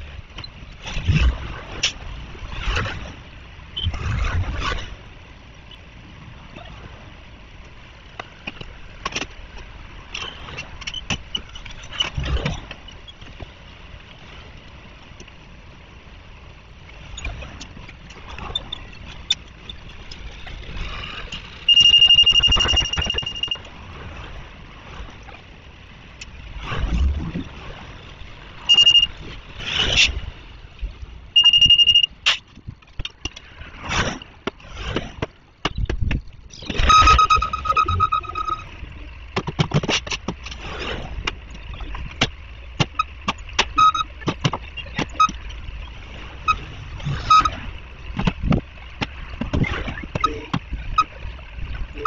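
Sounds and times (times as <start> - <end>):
vehicles passing: 0.0 - 52.0
high electronic beep: 21.7 - 23.7, 28.7 - 29.2, 31.4 - 32.2, 36.6 - 38.8, 43.8 - 45.4, 47.2 - 47.6, 50.1 - 51.2.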